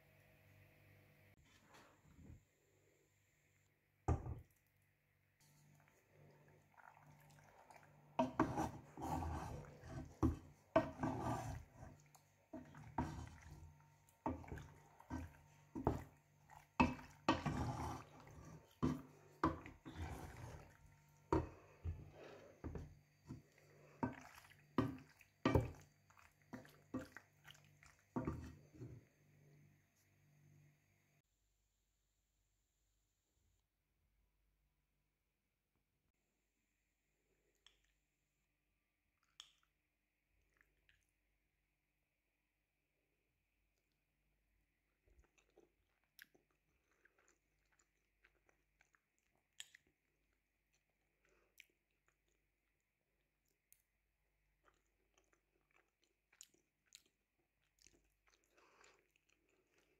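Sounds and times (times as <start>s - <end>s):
wet sticky stirring: 5.4s - 30.1s
wooden spoon knocking and scraping pan: 8.2s - 23.4s, 24.0s - 25.8s, 28.2s - 29.0s.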